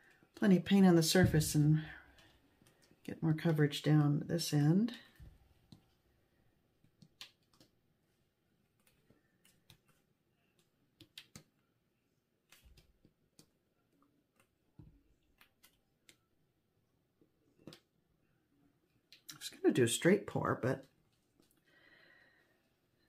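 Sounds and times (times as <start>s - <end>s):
faint clicks and taps: 1.9s - 3.1s, 5.1s - 6.0s, 6.8s - 11.6s, 12.4s - 16.3s, 17.2s - 18.0s.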